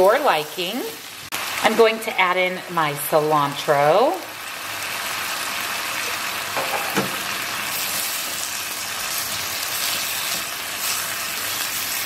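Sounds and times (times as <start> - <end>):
meat and onion sizzling: 0.0 - 12.0
spatula stirring in skillet: 7.7 - 12.0.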